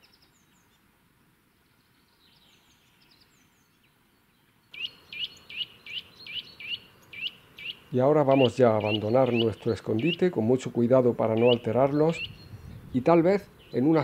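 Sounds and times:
faint small bird chirps: 1.7s - 10.2s
nuthatch whistled song: 4.7s - 10.3s, 11.3s - 12.9s.

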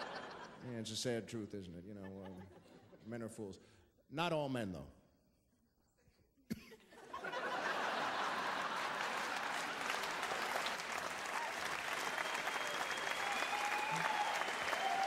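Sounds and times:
audience applauding: 7.5s - 15.0s.

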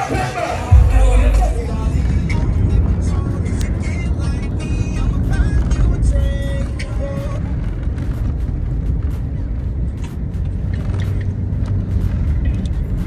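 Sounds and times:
music with heavy bass line: 0.7s - 3.4s
low steady rumble: 0.7s - 6.4s.

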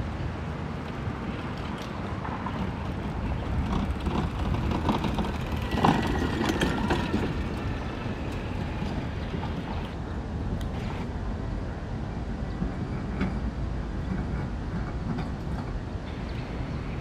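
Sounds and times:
golf cart driving past: 2.8s - 10.0s.

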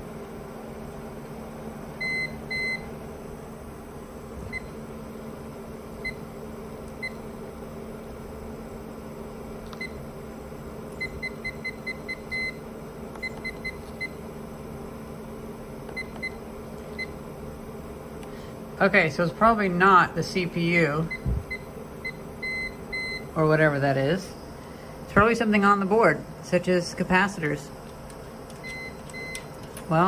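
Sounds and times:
cooling fans humming: 0.0s - 30.0s
display panel beeping: 28.6s - 29.5s.

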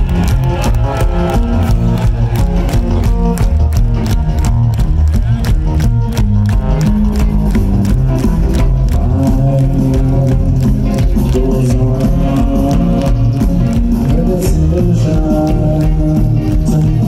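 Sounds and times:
electric guitars: 0.0s - 17.0s
heavy bass line: 0.0s - 17.0s
steady drum beat: 0.0s - 17.0s.

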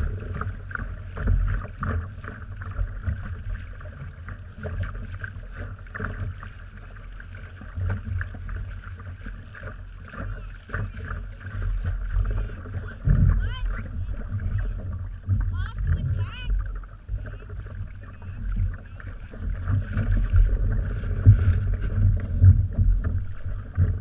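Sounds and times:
water slapping a boat hull: 0.0s - 24.0s
low wind rumble: 11.2s - 24.0s.

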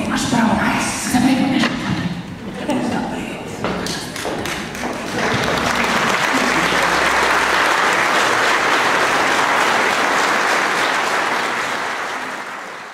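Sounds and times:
audience applauding: 4.1s - 12.9s.

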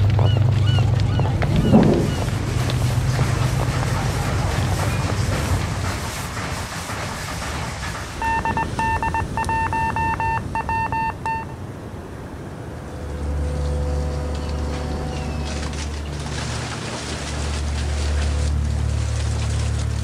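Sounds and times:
low steady hum: 0.0s - 20.0s
morse code beeps: 8.2s - 11.6s.

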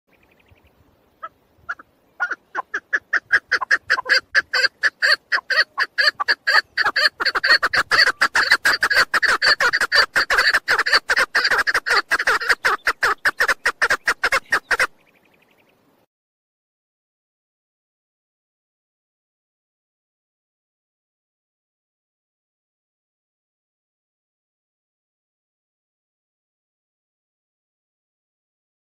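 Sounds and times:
partridge clucking call: 1.2s - 15.2s.

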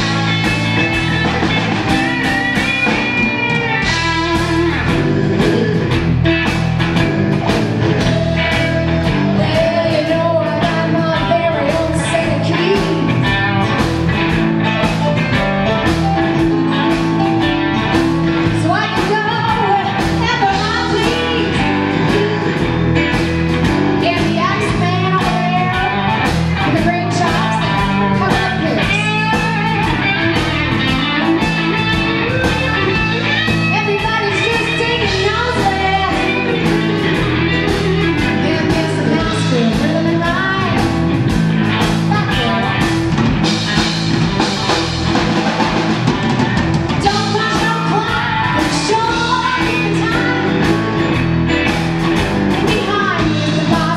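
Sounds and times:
live blues band playing: 0.0s - 53.9s
woman singing: 2.8s - 6.0s, 8.0s - 13.7s, 18.4s - 23.3s, 23.9s - 41.0s, 41.9s - 42.9s, 47.0s - 51.2s, 52.5s - 53.9s.

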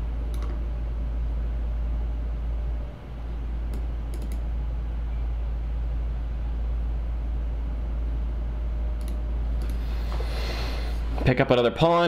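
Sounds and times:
low hum: 0.0s - 11.4s
computer mouse clicks: 0.3s - 0.6s, 3.7s - 4.5s, 9.0s - 9.8s.

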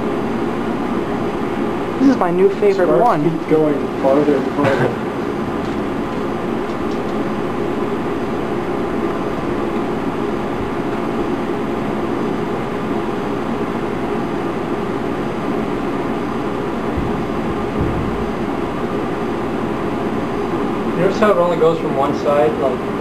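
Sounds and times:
microwave oven drone: 0.0s - 23.0s.

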